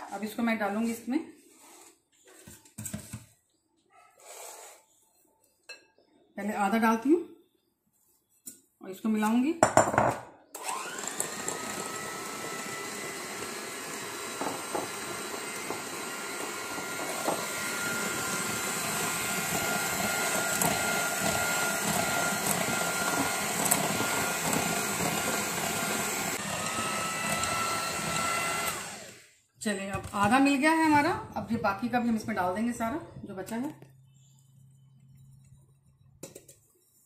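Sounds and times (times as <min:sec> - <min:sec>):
electric hand mixer whining: 0:10.6 - 0:29.4.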